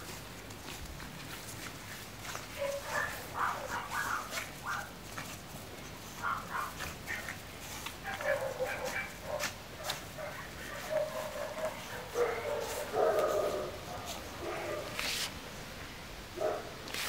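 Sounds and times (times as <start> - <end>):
puppies yapping: 2.6 - 15.0.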